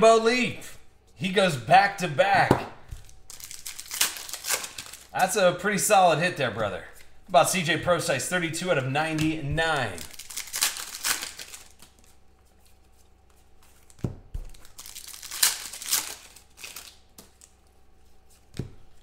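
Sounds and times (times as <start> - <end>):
cards and wrappers rustling: 2.9 - 5.4, 8.3 - 19.0
cards thumping on table: 14.0 - 14.6, 18.5 - 18.9.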